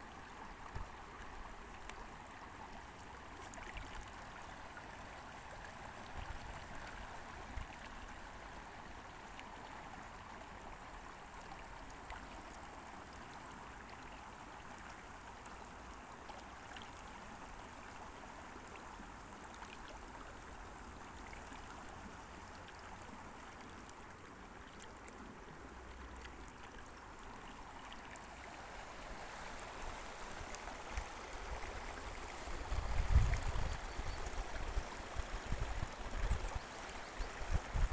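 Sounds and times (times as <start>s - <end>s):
creek babbling over stones: 0.0s - 37.9s.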